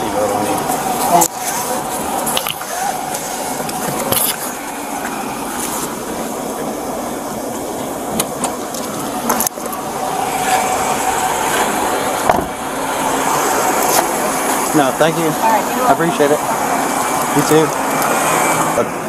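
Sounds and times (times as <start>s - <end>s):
vehicle idling: 0.0s - 19.0s
seatbelt rustling and clicking: 0.6s - 6.0s.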